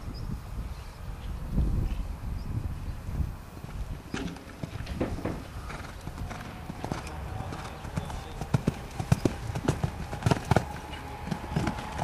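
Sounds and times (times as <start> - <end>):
horse hoofbeats on sand: 4.1 - 12.0.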